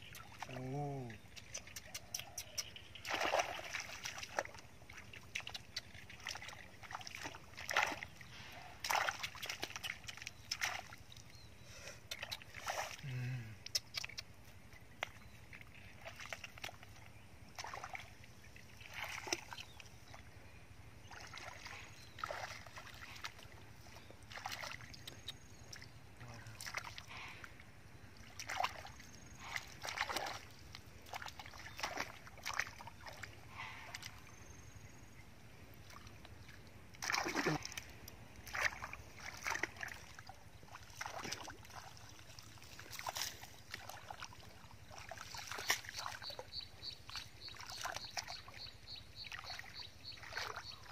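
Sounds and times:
hands splashing in muddy water: 0:01.3 - 0:11.1, 0:16.0 - 0:18.2, 0:18.8 - 0:19.8, 0:21.0 - 0:23.5, 0:24.2 - 0:25.9, 0:26.5 - 0:27.1, 0:28.2 - 0:34.2, 0:35.8 - 0:48.6, 0:49.2 - 0:50.9.

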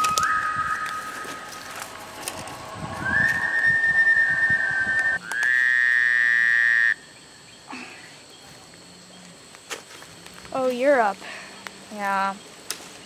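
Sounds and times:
thin high whistle tone: 0:00.0 - 0:05.6
buzzy whistle tone: 0:00.0 - 0:07.0.

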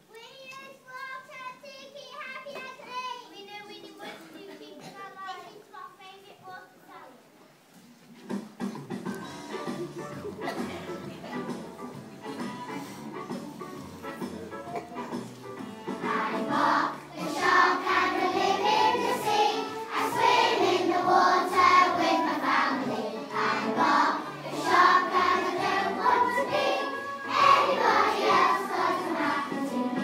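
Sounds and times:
instrumental accompaniment with bass: 0:08.9 - 0:16.2
children singing in unison: 0:15.9 - 0:30.0.

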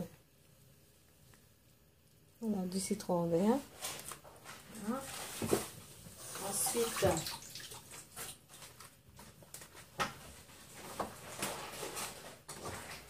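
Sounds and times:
soft rustling: 0:03.4 - 0:06.9.

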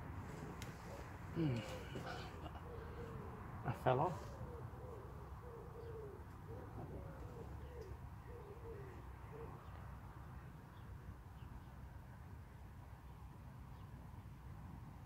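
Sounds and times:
pigeon cooing: 0:00.3 - 0:09.7.

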